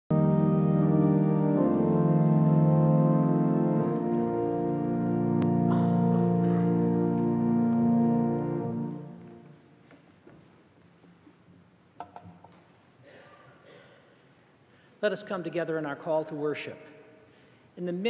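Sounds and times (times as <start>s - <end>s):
pipe organ sustained chords: 0.1s - 9.8s.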